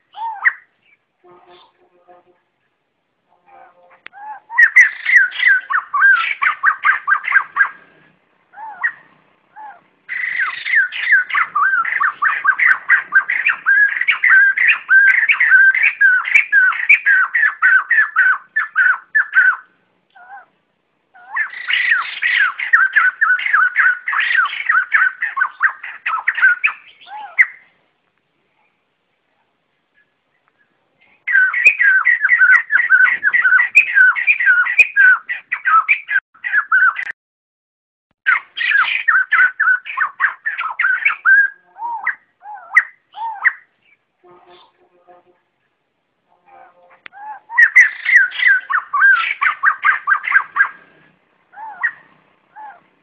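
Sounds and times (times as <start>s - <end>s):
bird squawking calls: 0.0s - 1.8s, 4.1s - 20.6s, 21.2s - 27.7s, 31.3s - 37.1s, 38.3s - 43.7s, 46.9s - 52.9s.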